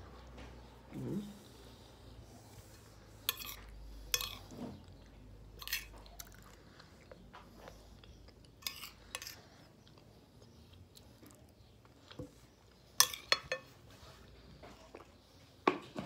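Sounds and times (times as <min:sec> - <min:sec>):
quiet chewing: 0:00.1 - 0:16.0
metal spoon scraping glass bowl: 0:03.2 - 0:04.5, 0:05.6 - 0:05.9, 0:08.6 - 0:09.4.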